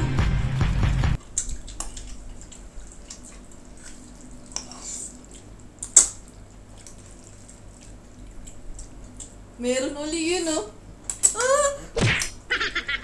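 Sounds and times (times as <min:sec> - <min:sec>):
wet mouth clicks: 0:01.2 - 0:07.0
noodles being slurped: 0:01.3 - 0:09.4.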